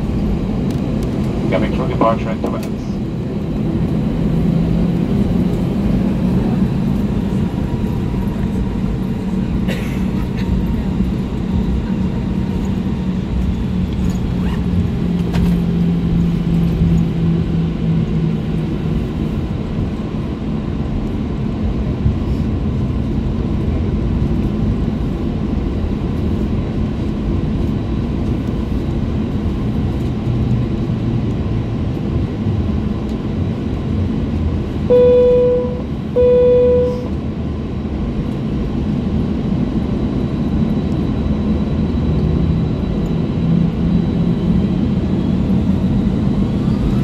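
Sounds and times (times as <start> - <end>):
aircraft cabin rumble: 0.0 - 47.0
low hum: 2.8 - 37.7.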